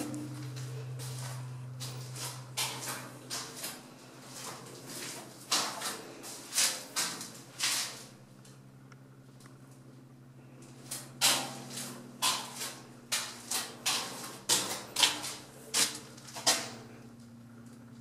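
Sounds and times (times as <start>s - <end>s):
footsteps on concrete floor: 0.0s - 8.1s, 10.7s - 16.8s.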